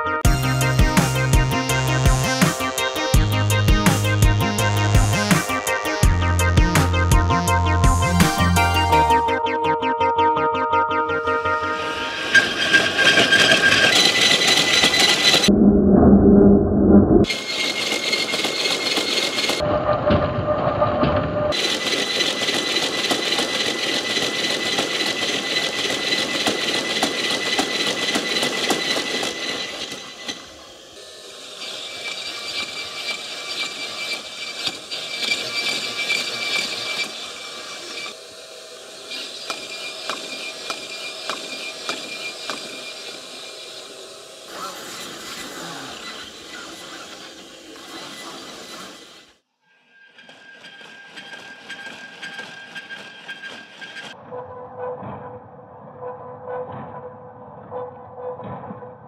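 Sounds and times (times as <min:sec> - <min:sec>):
robot motors whirring: 0:21.5 - 0:49.4.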